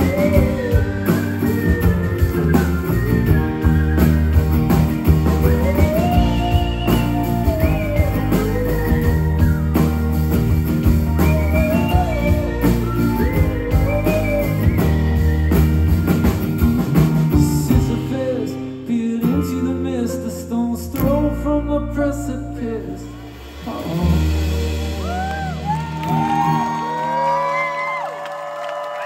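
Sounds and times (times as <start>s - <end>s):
person singing: 0.0s - 4.0s, 11.3s - 15.2s, 17.3s - 27.4s
guitars: 0.0s - 28.1s
bass: 0.0s - 28.2s
drums: 0.0s - 29.0s.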